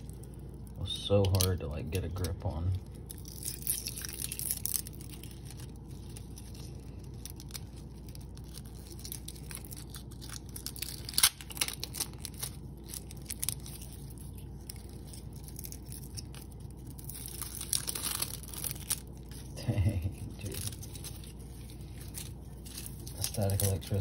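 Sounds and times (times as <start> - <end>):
plastic wrap crinkling: 0.0 - 24.0.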